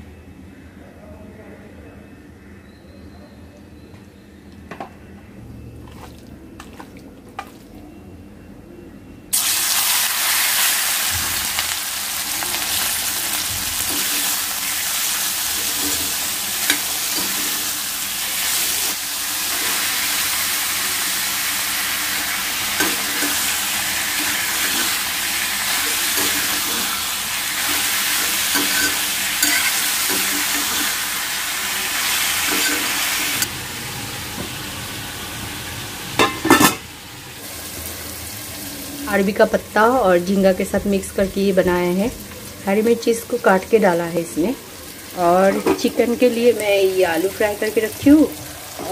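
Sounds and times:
prawns sizzling in hot oil: 9.3 - 48.9
steel spoon stirring in pan: 13.8 - 20.0, 22.6 - 31.3, 32.0 - 33.5.

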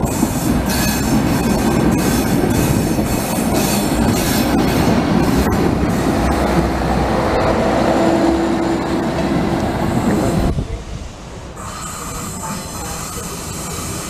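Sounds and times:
train wheels rumbling on rail: 0.0 - 14.0
train whine: 0.0 - 14.0.

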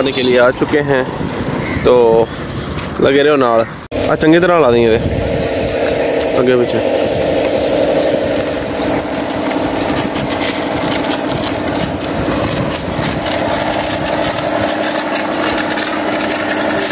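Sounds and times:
hose jet spraying water: 3.9 - 16.9
water pump droning: 3.9 - 16.9.

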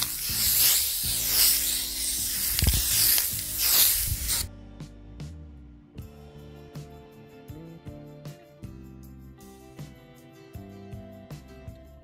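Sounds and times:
spray paint aerosol hiss: 0.0 - 4.5
low background music: 0.0 - 12.0.

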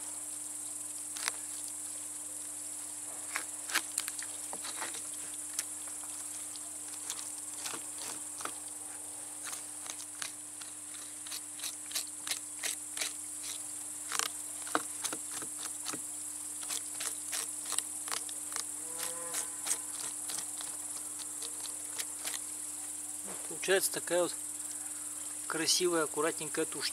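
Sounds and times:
insects chirring: 0.0 - 26.9.

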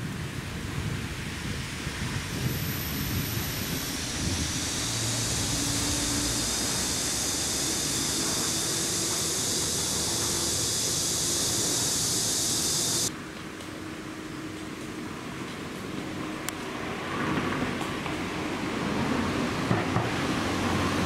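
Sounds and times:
wind rumble on microphone: 0.0 - 13.1
high-pitched hiss: 1.4 - 13.1.

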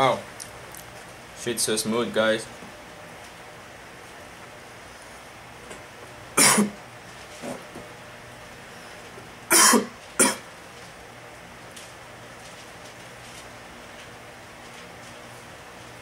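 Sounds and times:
man coughing: 6.4 - 6.8, 9.5 - 10.5.

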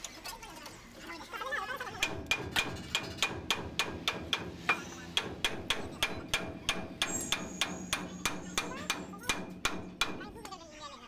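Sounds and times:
hammer striking steel: 2.0 - 10.5.

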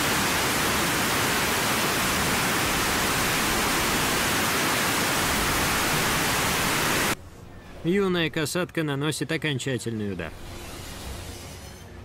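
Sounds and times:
churning water and surf: 0.0 - 7.2.

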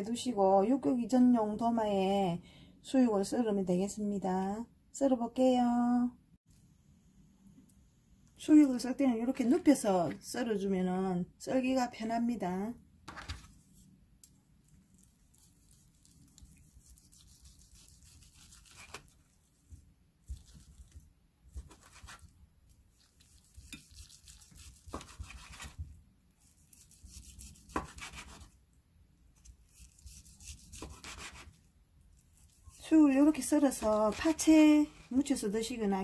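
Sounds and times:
knife sawing through meat: 15.3 - 19.1, 23.2 - 25.8, 29.7 - 31.6.

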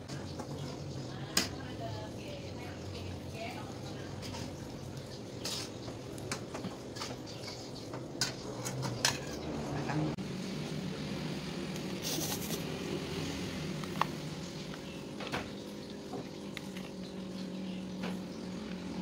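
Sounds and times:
low background hum: 0.0 - 19.0
utensils clinking against a wok: 4.1 - 9.6.

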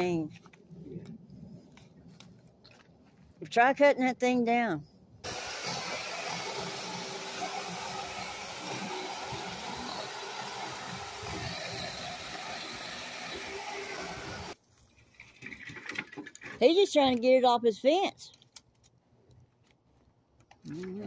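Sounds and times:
electric chainsaw cutting wood: 5.2 - 14.6.

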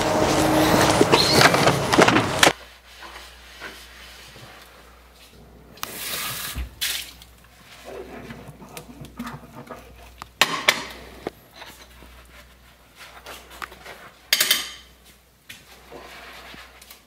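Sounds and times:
dishes clinking and clattering: 14.3 - 15.0.

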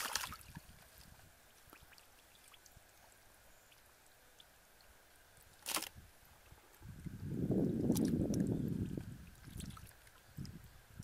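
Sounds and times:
muddy water splash: 0.0 - 2.7, 5.6 - 6.0, 7.8 - 10.6
water dripping: 7.8 - 10.6.

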